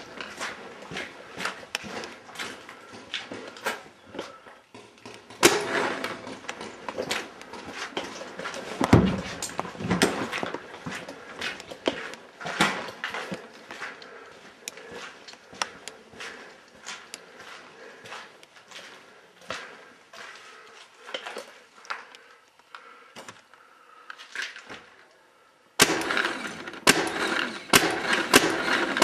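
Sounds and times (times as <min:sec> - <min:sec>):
knocks and scuffs: 0:00.0 - 0:22.1
footsteps on debris-strewn floor: 0:00.0 - 0:25.1.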